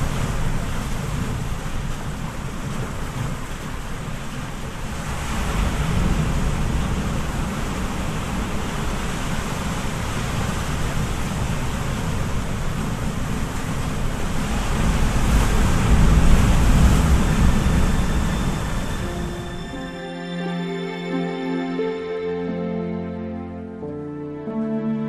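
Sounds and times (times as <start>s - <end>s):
wind buffeting microphone: 0.0s - 19.4s
sea water rushing past boat: 0.0s - 24.3s.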